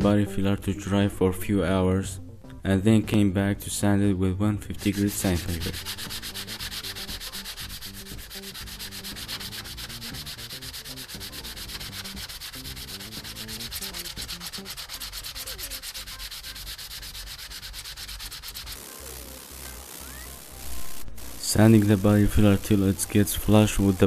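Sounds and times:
sanding sponge rasping on filler: 4.8 - 24.0.

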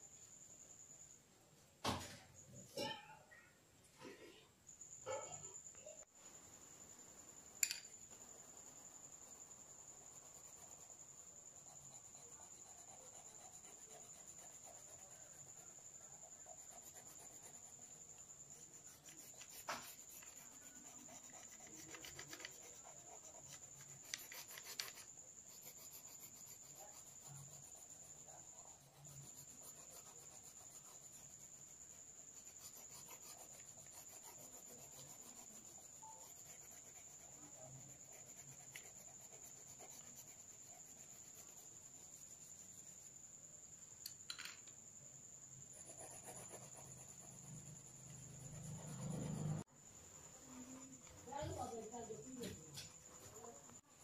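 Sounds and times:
pencil scratching on paper: 8.1 - 43.1, 45.7 - 49.7, 50.8 - 53.8.

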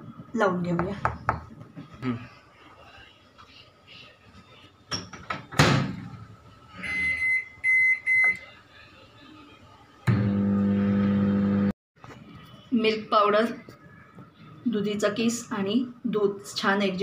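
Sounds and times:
microwave oven humming: 10.1 - 11.7.

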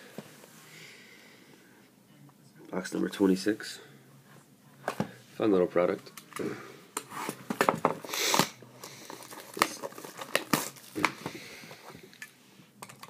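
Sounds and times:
plastic tearing: 7.3 - 11.3
plastic wrap crinkling: 8.1 - 11.4.

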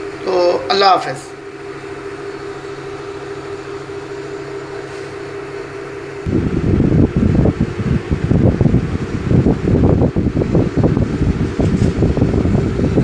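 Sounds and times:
fan humming: 0.0 - 13.0
wind buffeting microphone: 6.2 - 13.0.

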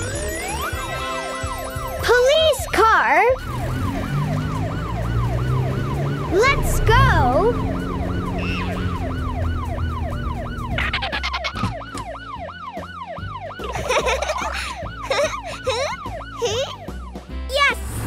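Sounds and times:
cartoon police siren yelping: 0.0 - 1.3, 1.9 - 17.2
squeaky cartoon effects: 10.8 - 11.7.

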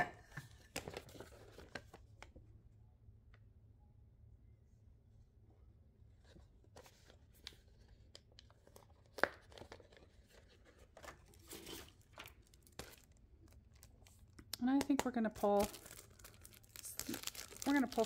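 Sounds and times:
sharp paper crackle: 15.0 - 18.0.

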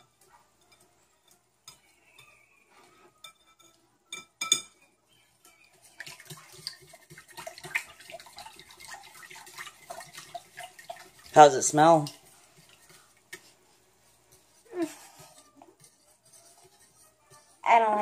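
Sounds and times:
wet whisking: 0.0 - 3.8, 4.8 - 18.0
whisk clinking against bowl: 5.4 - 13.5, 14.3 - 17.6.

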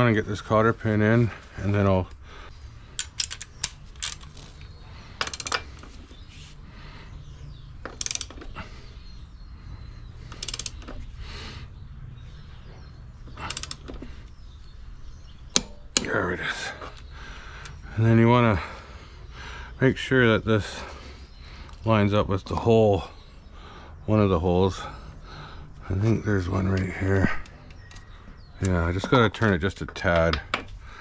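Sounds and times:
ratchet wrench clicking: 2.9 - 4.4, 5.2 - 5.7, 7.8 - 8.5, 10.2 - 11.0, 13.4 - 14.0.

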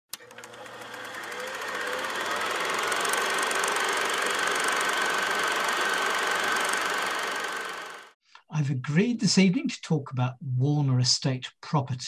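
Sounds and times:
machine hum and hiss: 0.3 - 8.2.

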